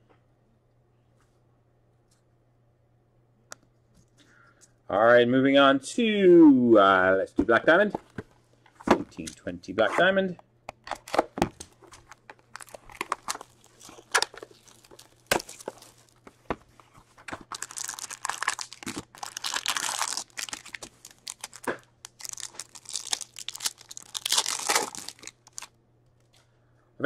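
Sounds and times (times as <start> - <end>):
plastic wrap tearing and crinkling: 11.0 - 25.7.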